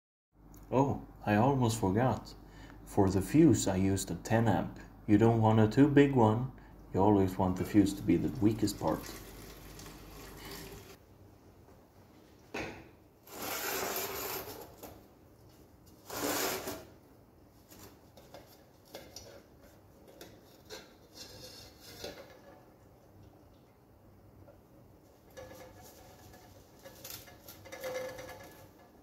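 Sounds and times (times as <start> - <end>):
metal scraping: 20.4 - 22.7, 25.2 - 29.0.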